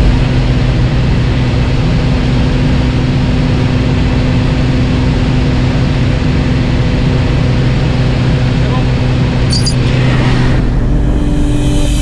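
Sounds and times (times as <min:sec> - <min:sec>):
rushing noise: 0:00.0 - 0:02.4, 0:09.4 - 0:12.0
propeller engine drone: 0:00.0 - 0:12.0.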